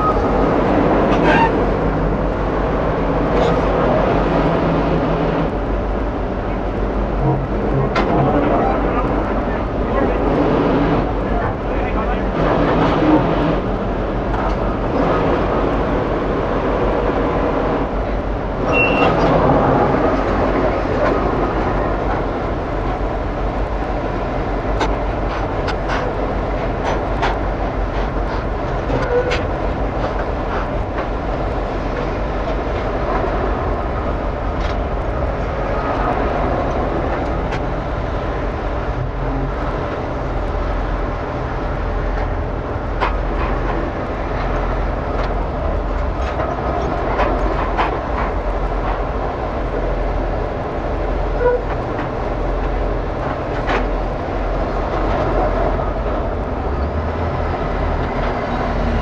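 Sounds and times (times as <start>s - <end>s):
diesel truck engine drone: 0.0s - 59.0s
brief high squeak: 18.7s - 19.3s.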